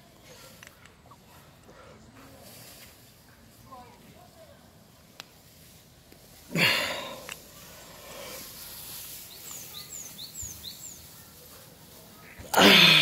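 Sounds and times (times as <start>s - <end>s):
man's loud strained grunt: 6.5s - 7.2s, 12.5s - 13.0s
bird chirping: 7.7s - 11.4s.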